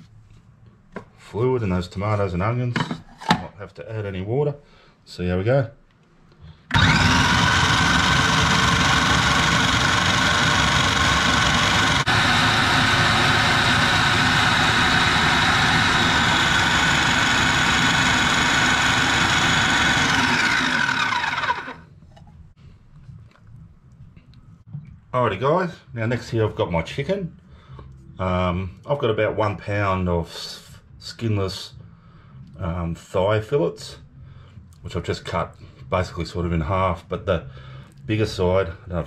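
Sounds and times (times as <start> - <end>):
food processor motor running: 6.7 - 21.9.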